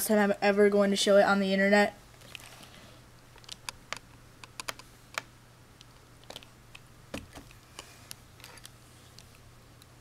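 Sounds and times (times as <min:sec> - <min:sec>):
keyboard keys clicking: 0:03.4 - 0:05.3.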